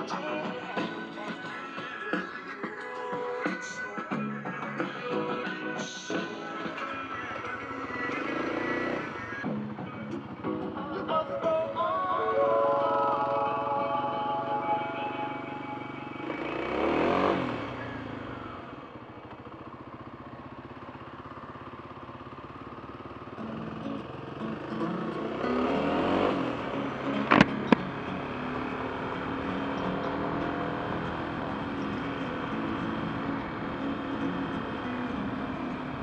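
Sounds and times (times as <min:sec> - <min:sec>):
vehicle engine and road noise: 0:00.0 - 0:36.0
sharp clicks: 0:27.2 - 0:27.9.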